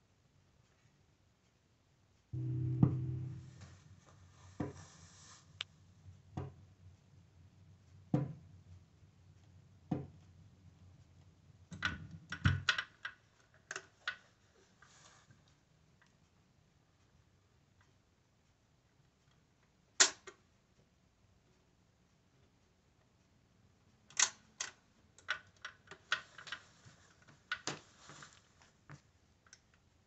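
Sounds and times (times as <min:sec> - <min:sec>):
turntable mechanism thumps: 0:02.4 - 0:04.0.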